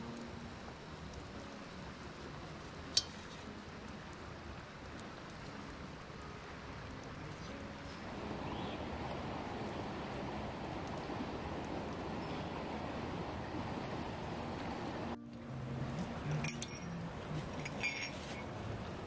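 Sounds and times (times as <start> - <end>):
small ticks: 0.0 - 7.8
faint steady hiss: 0.0 - 19.0.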